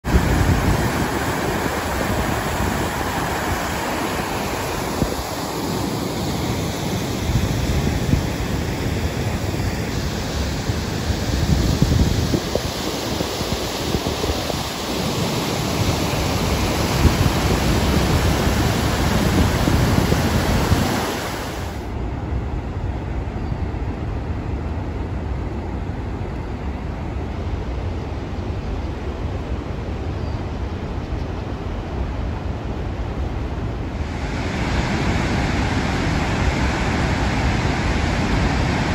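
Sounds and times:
rushing water of rapids: 0.0s - 22.0s, 31.6s - 38.9s
wind buffeting microphone: 0.0s - 38.9s.

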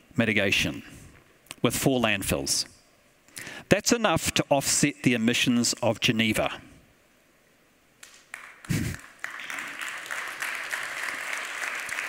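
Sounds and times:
audience applause: 8.3s - 12.0s.

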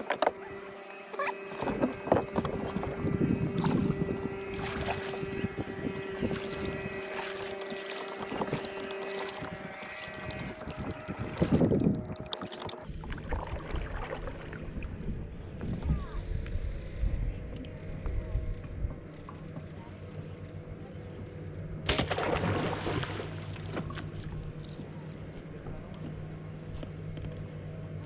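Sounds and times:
steady hum: 0.0s - 13.3s
kayak paddle splashing water: 0.0s - 14.8s, 21.9s - 24.2s
paddle knocking against hull: 1.5s - 4.0s
wind on microphone: 1.5s - 19.1s.

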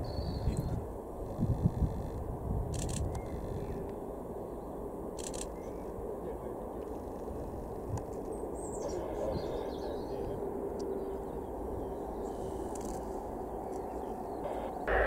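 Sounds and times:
distant jet engines rumbling: 0.0s - 15.0s.

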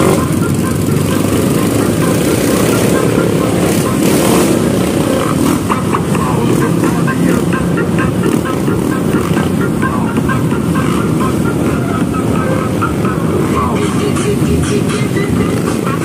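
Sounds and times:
dirt bike engines droning: 0.0s - 16.0s.

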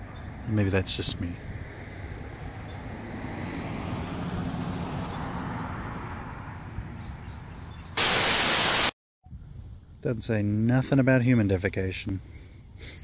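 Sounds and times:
loud white-noise static burst: 8.0s - 9.0s.

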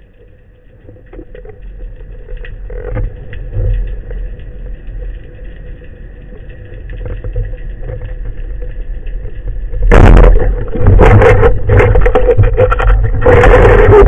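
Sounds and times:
muffled underwater rumble: 0.0s - 14.0s
clattering and scraping: 9.9s - 14.0s.

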